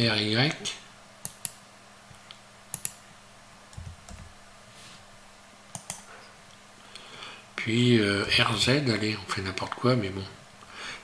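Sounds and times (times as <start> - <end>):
computer keys clicking: 1.2 - 1.6, 2.7 - 3.0, 5.7 - 6.1
mouse clicks: 1.2 - 1.6, 2.7 - 3.0, 5.7 - 6.1.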